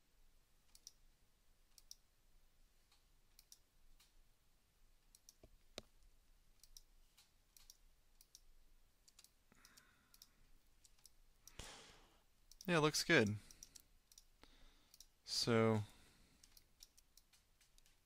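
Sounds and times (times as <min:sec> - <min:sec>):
computer mouse clicks: 0:00.6 - 0:01.0, 0:01.7 - 0:02.0, 0:02.9 - 0:04.2, 0:05.0 - 0:06.0, 0:06.6 - 0:11.8, 0:12.5 - 0:15.2, 0:16.4 - 0:18.0.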